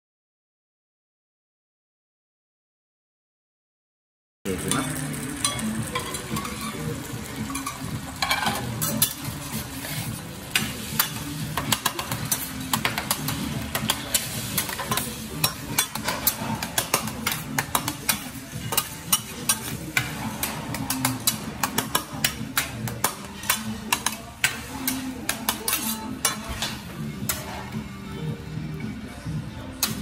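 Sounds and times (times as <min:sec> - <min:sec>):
metal spatula scraping griddle: 0:05.4 - 0:27.8.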